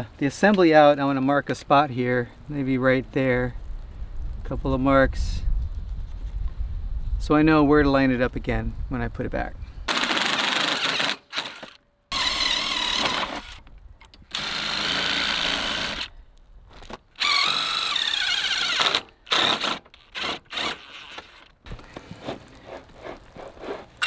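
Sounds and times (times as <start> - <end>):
power drill whining: 9.9 - 13.7, 14.3 - 16.1, 17.2 - 22.1.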